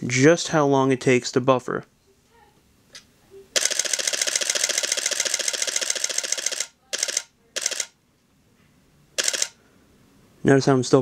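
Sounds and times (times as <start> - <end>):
camera shutter firing in bursts: 3.6 - 8.0, 9.2 - 9.6.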